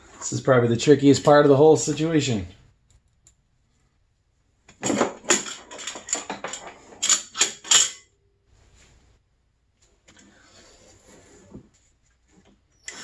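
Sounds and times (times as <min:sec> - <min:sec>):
metallic clinks and rattles: 0:04.8 - 0:08.1.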